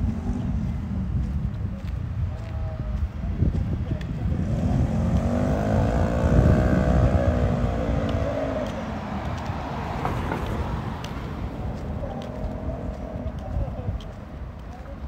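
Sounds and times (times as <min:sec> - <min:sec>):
vehicle driving past: 0:04.3 - 0:13.5.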